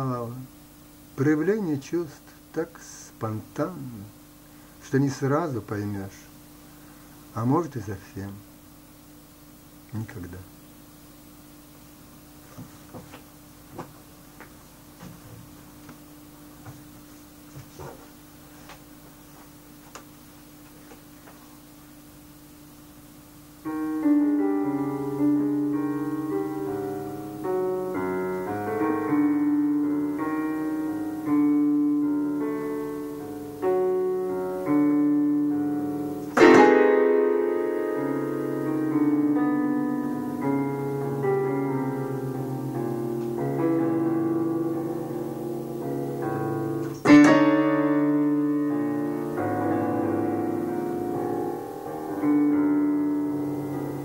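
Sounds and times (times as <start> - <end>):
electronic keyboard piano chords: 23.6 - 54.0
loud struck piano chords: 23.7 - 54.0.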